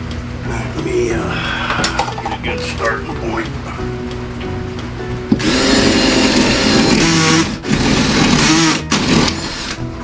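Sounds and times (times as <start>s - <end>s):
power saw cutting wood: 5.3s - 9.9s.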